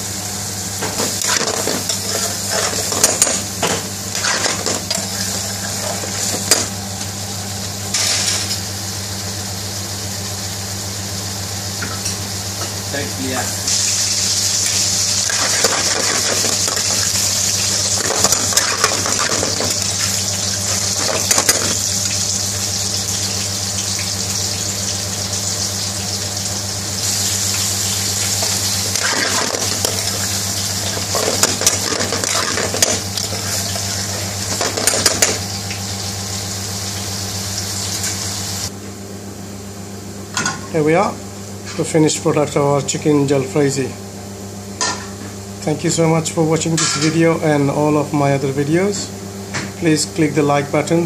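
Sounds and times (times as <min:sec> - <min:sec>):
food sizzling: 0:00.0 - 0:38.7.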